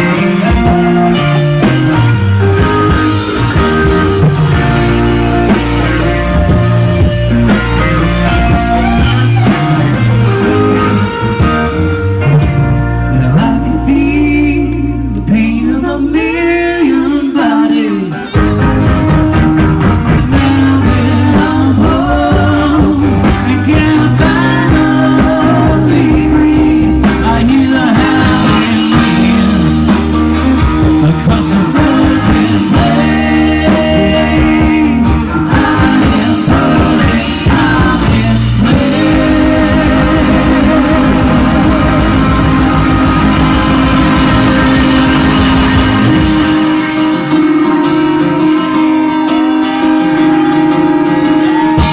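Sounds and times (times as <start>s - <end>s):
live rock band playing: 0.0s - 51.9s
person singing: 13.0s - 19.1s, 20.1s - 51.9s.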